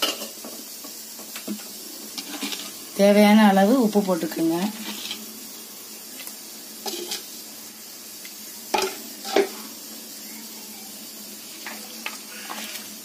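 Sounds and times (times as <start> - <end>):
metal utensil stirring a pot: 2.2 - 2.8, 4.7 - 5.3, 6.8 - 7.3.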